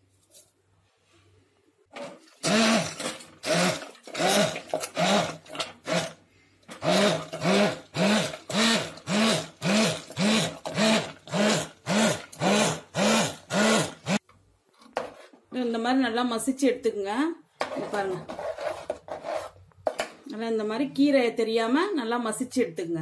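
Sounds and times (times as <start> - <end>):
immersion blender bursts: 2.0 - 14.2.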